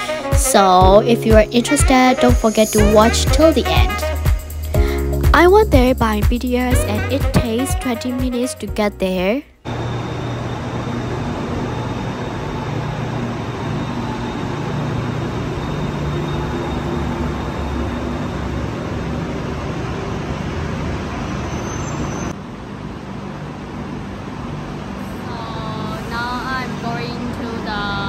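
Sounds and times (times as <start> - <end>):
station noise: 0.0 - 28.0
electric train rumbling: 9.7 - 28.0.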